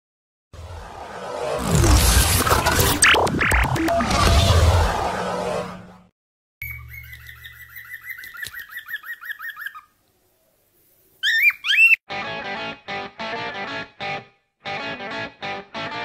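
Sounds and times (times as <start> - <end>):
parrot chirping: 6.6 - 10.0, 11.2 - 12.0
parrot calls rising and falling: 11.2 - 12.0.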